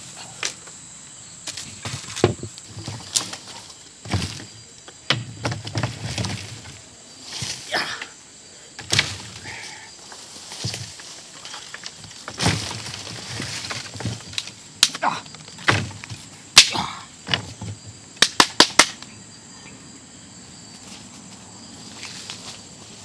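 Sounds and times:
dry branches rustling and scraping: 0:01.4 - 0:08.1, 0:08.8 - 0:16.5, 0:20.7 - 0:23.0
branches snapping: 0:01.4 - 0:08.2, 0:08.8 - 0:17.4, 0:18.2 - 0:19.1.

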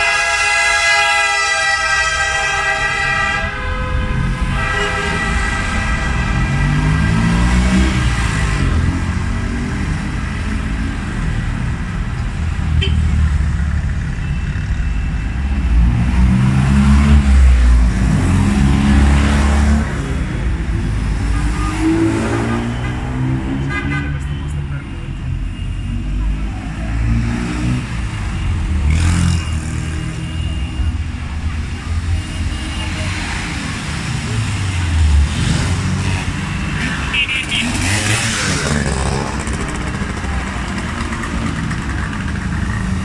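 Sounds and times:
car horn blast: 0:00.0 - 0:07.0.

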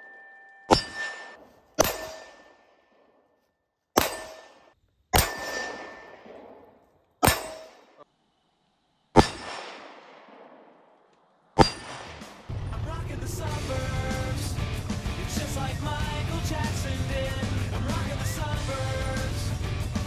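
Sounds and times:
steel target ringing ding: 0:00.0 - 0:02.8, 0:04.0 - 0:06.2, 0:07.2 - 0:08.0, 0:11.6 - 0:12.0
pistol shots: 0:00.7 - 0:03.2, 0:04.0 - 0:08.0, 0:09.2 - 0:12.5.

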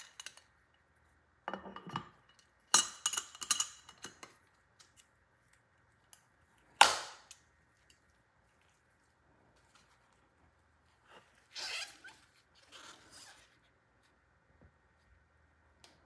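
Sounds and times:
handling and scraping: 0:07.4 - 0:15.4.

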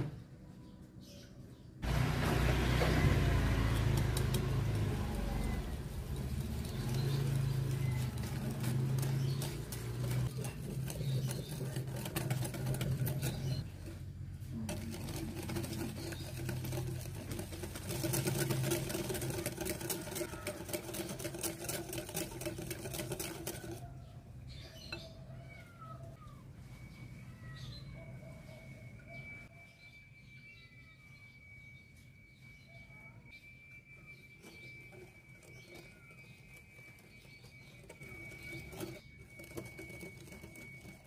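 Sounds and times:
whisk clattering against glass bowl: 0:04.2 - 0:13.7, 0:14.7 - 0:23.9
faint chirps: 0:23.8 - 0:41.0.

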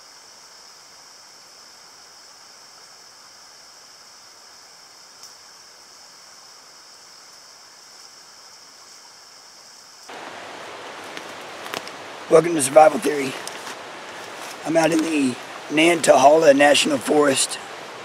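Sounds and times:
creek rushing: 0:10.1 - 0:18.0.

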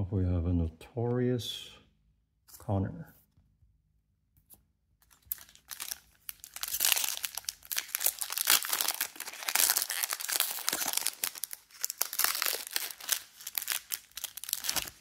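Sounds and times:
foil wrapper crinkling: 0:05.0 - 0:15.0.

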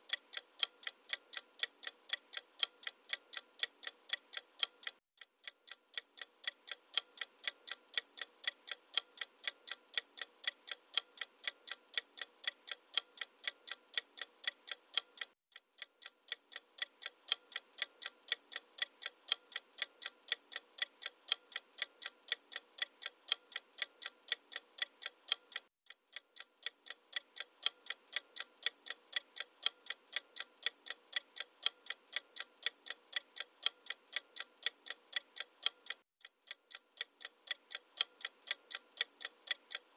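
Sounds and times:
clock ticking: 0:00.0 - 0:39.9.

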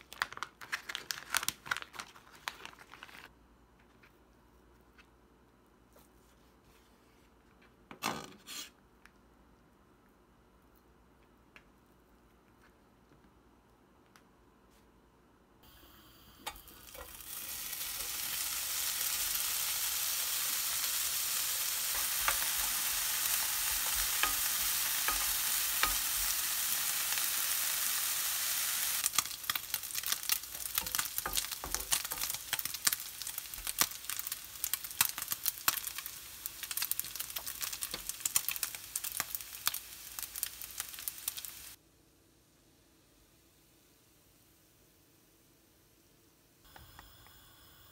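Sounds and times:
bacon sizzling and popping in pan: 0:16.4 - 0:41.8.

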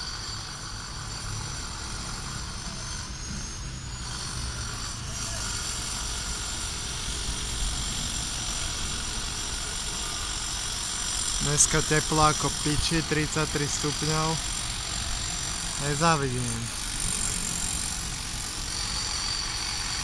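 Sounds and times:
faint high whine: 0:11.2 - 0:20.0.

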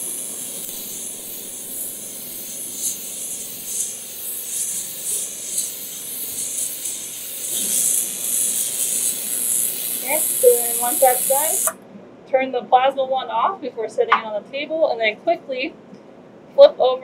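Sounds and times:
high-pitched corona discharge hiss: 0:00.0 - 0:11.8.

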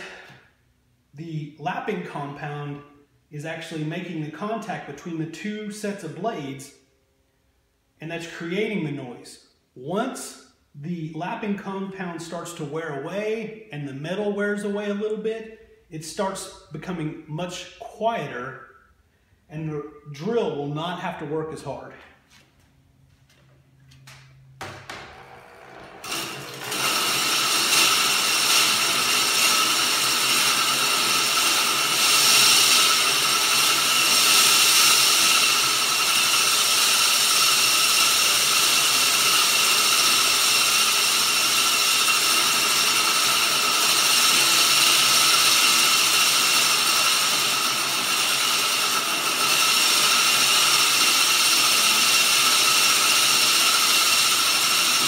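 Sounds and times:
mower reel grinding metallic rasp: 0:25.1 - 0:55.0.

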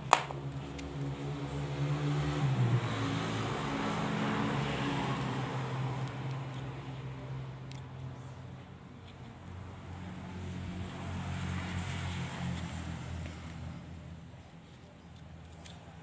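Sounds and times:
vehicle engine passing by: 0:00.4 - 0:07.5, 0:09.8 - 0:14.5.

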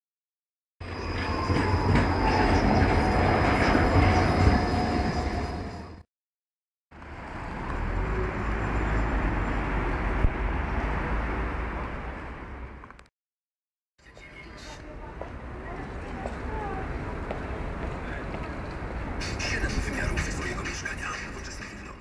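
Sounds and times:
tram rumbling with whine: 0:00.8 - 0:06.0, 0:14.1 - 0:22.0
street rumble: 0:06.9 - 0:13.1, 0:14.0 - 0:22.0.

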